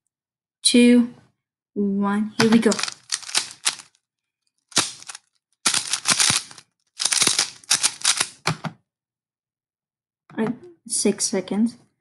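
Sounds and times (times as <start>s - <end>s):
puzzle cube clacking: 2.4s - 4.0s, 4.7s - 8.7s.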